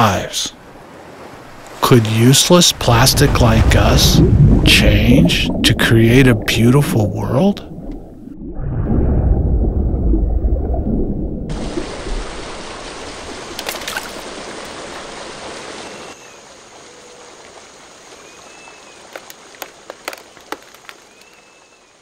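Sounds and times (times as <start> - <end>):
stream flowing water: 0.0 - 8.4, 11.5 - 22.0
deep underwater rumble: 2.8 - 12.2.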